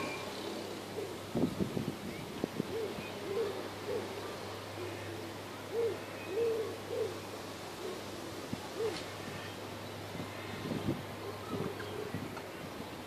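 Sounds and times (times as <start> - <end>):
low hooting calls: 0.0 - 1.3, 2.6 - 9.6.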